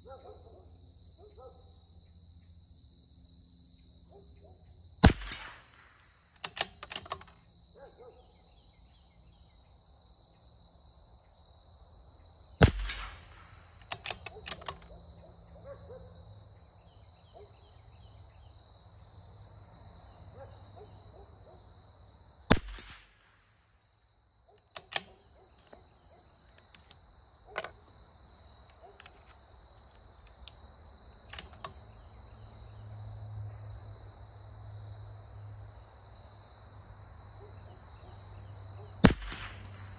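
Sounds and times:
high insect drone: 0.0 - 5.1, 6.1 - 22.5, 23.8 - 39.1
rifle bolt clicks: 5.0 - 7.4, 12.6 - 15.0, 22.5 - 23.0, 24.6 - 25.8, 26.6 - 27.8, 31.2 - 31.8, 39.0 - 39.8
rifle shots: 5.0 - 7.4, 12.6 - 14.9, 22.5 - 23.4, 39.0 - 39.9.

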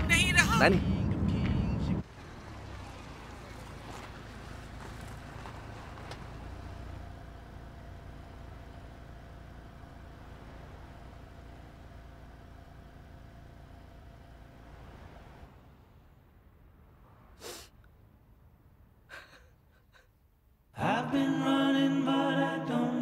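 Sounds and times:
cars driving past: 0.0 - 19.1.

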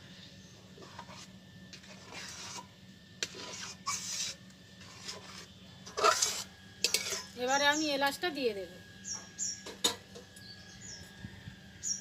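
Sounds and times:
steady low hum: 0.0 - 12.0
metal spatula scraping metal pot: 0.8 - 7.4.

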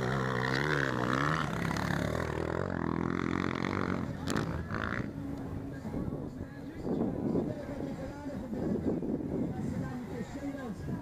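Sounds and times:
motocross bike engines revving: 0.0 - 5.6.

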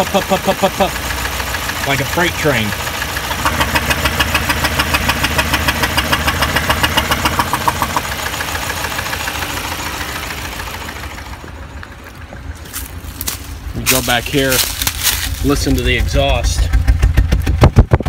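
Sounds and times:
car engine running rough: 0.0 - 18.0.

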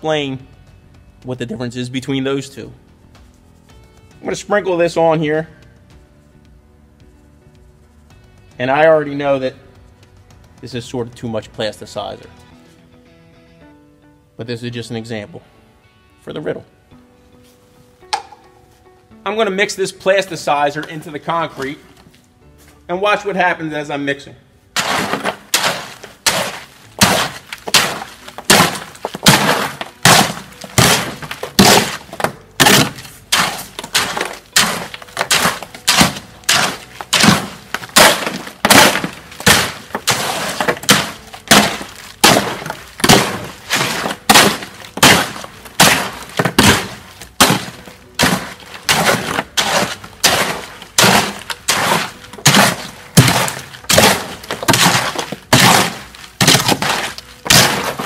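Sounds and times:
hoe scraping concrete in wheelbarrow: 24.8 - 58.0.

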